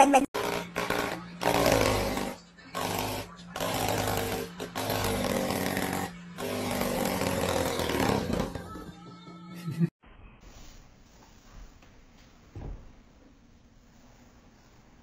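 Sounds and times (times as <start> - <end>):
electric fan buzzing and rattling: 0.4 - 8.8.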